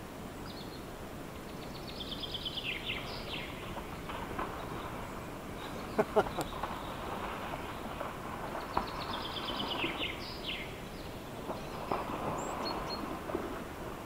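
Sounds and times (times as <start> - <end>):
bird singing: 1.4 - 8.0, 8.6 - 13.1
water splashing: 2.8 - 14.0.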